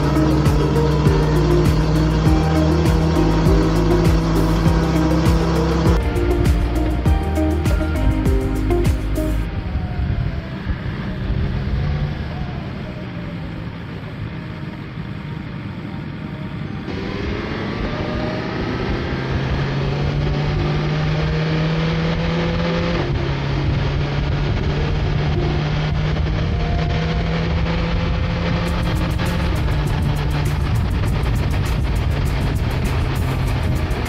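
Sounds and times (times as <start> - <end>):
motorcycle engine accelerating: 0.0 - 15.6, 16.5 - 34.0
wind noise: 23.0 - 34.0.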